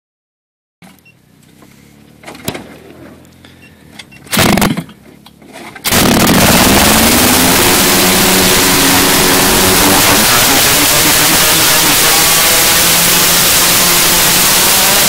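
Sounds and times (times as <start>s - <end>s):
small two-stroke engine running: 5.8s - 15.0s.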